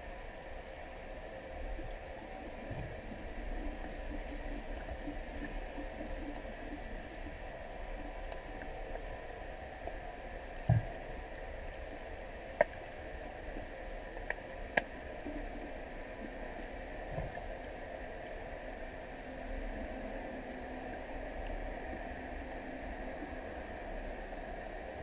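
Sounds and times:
underwater hiss and hum: 0.0 - 25.0.

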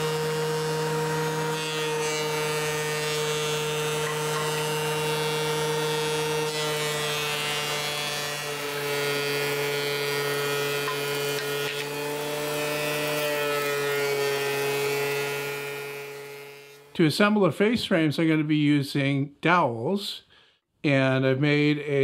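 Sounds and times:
thickness planer whining: 0.0 - 16.9.

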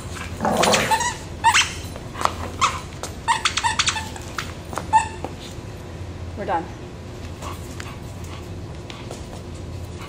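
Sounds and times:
dog barking and yipping: 0.5 - 1.9, 2.6 - 4.3.

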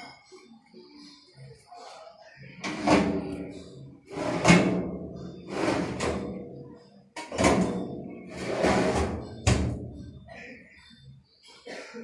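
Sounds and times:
metal drawers sliding on runners: 4.1 - 4.9, 5.5 - 6.3, 7.3 - 9.2.

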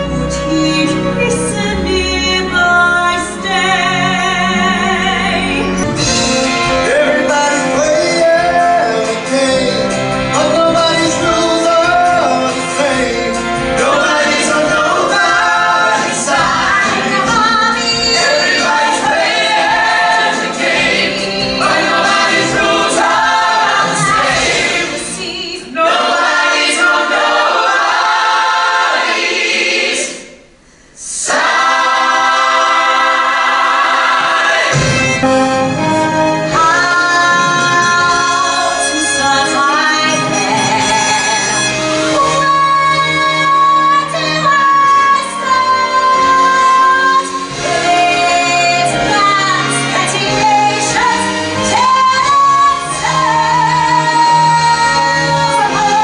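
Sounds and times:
instrumental accompaniment: 0.0 - 30.1, 31.3 - 56.0
cast singing together: 10.4 - 35.3, 42.2 - 56.0.

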